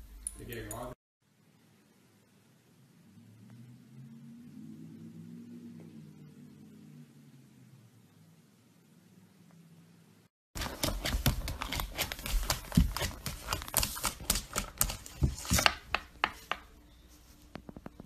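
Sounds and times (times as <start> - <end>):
puppy claws tapping on wooden floor: 10.6 - 16.7.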